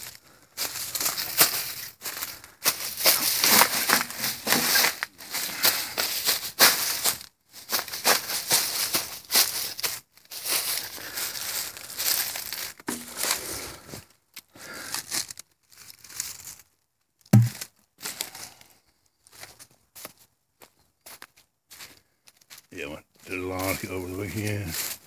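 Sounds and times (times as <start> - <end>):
footsteps on leaves and gravel: 0.0 - 14.1, 14.7 - 16.7, 17.4 - 25.0
low thud: 17.4 - 17.6.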